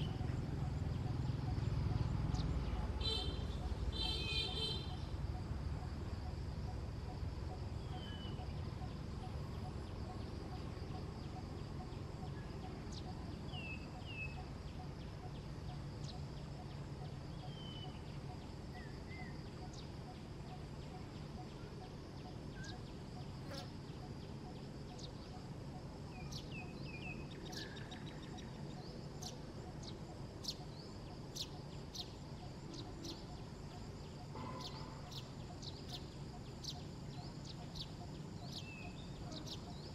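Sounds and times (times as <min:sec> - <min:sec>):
low background noise: 0:00.0 - 0:39.9.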